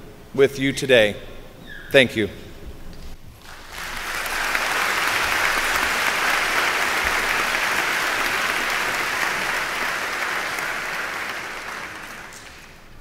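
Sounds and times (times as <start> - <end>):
audience applauding: 3.4 - 13.0.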